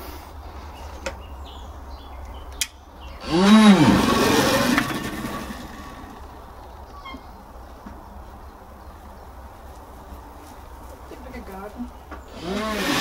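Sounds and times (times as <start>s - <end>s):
electric motor whine: 3.2s - 6.3s, 12.3s - 13.0s.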